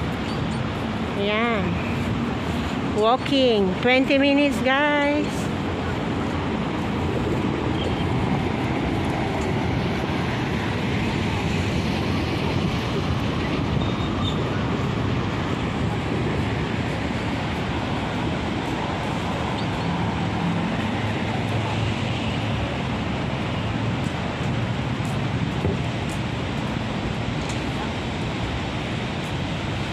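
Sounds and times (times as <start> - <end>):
street traffic: 0.0 - 29.9
wind buffeting microphone: 5.0 - 29.9.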